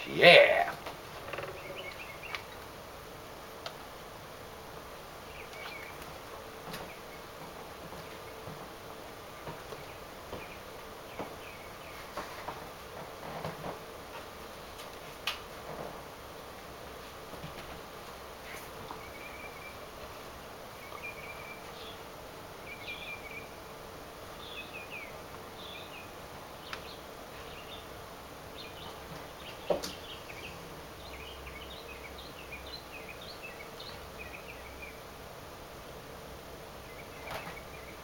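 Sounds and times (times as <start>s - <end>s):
small birds chirping: 0.0s - 2.8s, 4.8s - 8.6s, 9.2s - 12.6s, 18.4s - 23.6s, 24.2s - 35.2s, 36.8s - 38.0s.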